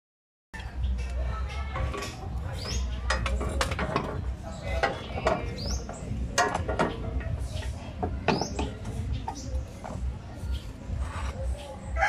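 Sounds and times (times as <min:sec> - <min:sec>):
metallic clicks and knocks: 0:01.0 - 0:10.1.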